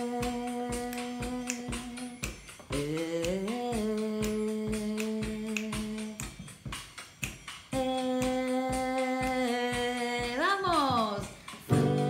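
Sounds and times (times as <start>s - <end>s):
woman singing long notes: 7.7s - 12.0s.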